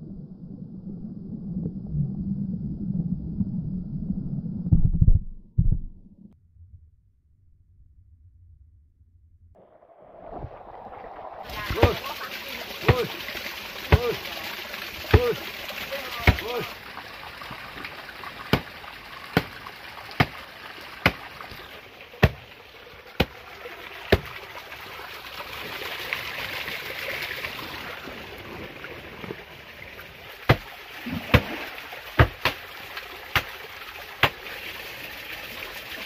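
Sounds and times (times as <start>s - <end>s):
stream water running over stones: 9.6s - 36.0s
sharp knocks of hard things: 22.2s - 22.4s, 32.2s - 32.6s.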